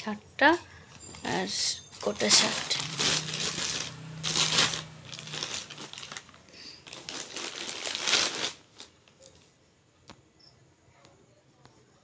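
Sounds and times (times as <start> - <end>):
shopping bags crinkling: 0.9 - 9.2.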